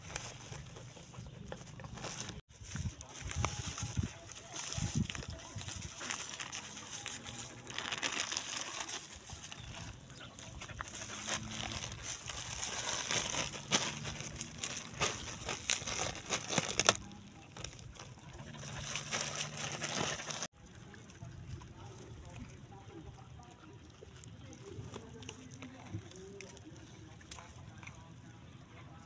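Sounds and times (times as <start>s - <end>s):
plastic bag crinkling: 0.0s - 20.5s
straw rustling: 0.0s - 28.9s.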